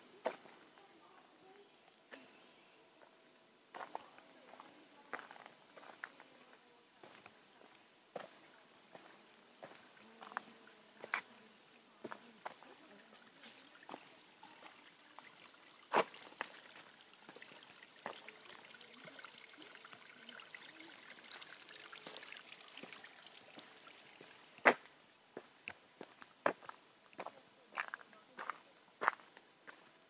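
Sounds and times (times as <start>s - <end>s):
water trickling: 3.0s - 29.8s
footsteps on dirt trail: 24.6s - 29.9s.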